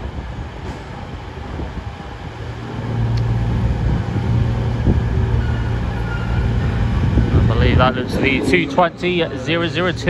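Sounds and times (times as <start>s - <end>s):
diesel train engines humming: 0.0s - 10.0s.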